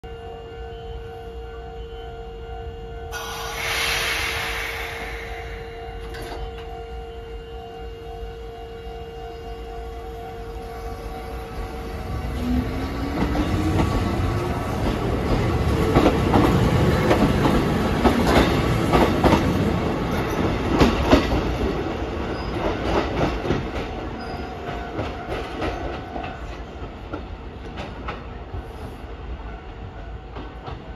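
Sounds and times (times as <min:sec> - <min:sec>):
electric train motor whine: 0:03.1 - 0:16.7.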